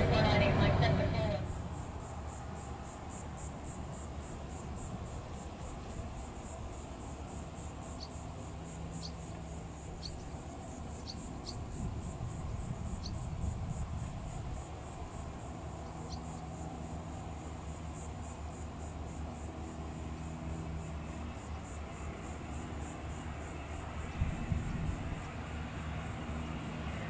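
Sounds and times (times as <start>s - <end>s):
low background rumble: 0.0s - 16.6s
insects chirping: 0.0s - 27.0s.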